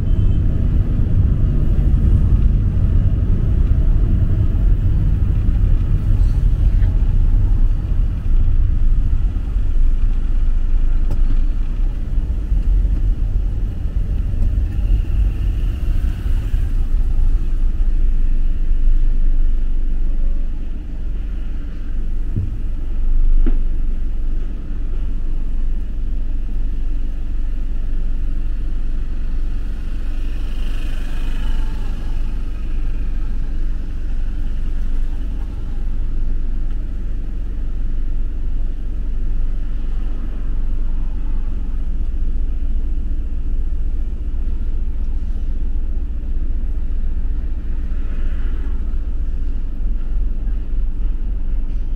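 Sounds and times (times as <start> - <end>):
road traffic rumble: 0.0 - 51.9.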